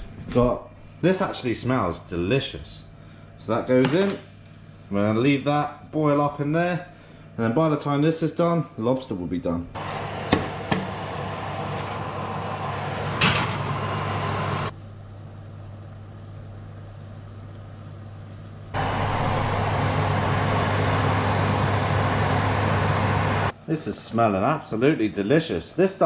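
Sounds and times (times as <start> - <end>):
oven hissing and humming: 9.5 - 26.0
pot boiling with hiss and hum: 9.8 - 26.0.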